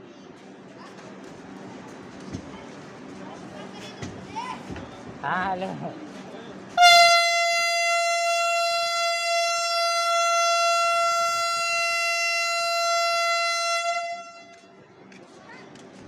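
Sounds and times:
train horn blast: 6.8s - 14.8s.

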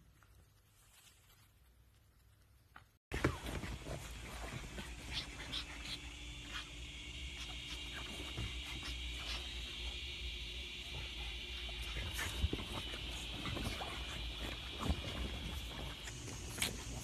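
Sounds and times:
dogs scuffling: 3.1s - 10.0s, 10.8s - 17.0s.

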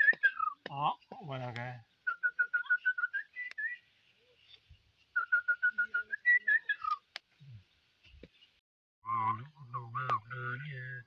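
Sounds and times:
man whistling bird call: 0.0s - 0.6s, 2.1s - 3.8s, 5.2s - 7.0s.

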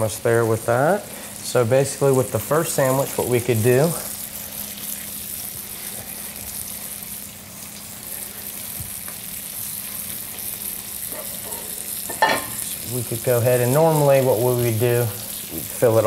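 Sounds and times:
fish sizzling in a skillet: 0.0s - 16.0s.

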